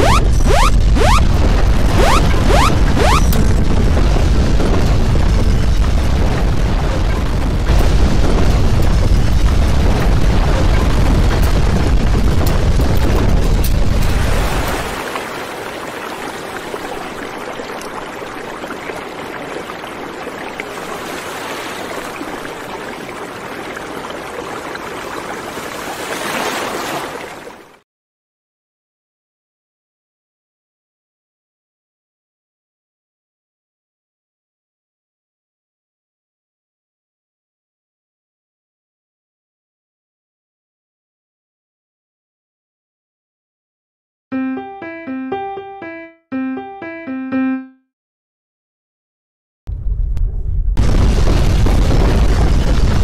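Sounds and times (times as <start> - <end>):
earthquake rumbling: 0.0 - 25.1, 49.7 - 53.0.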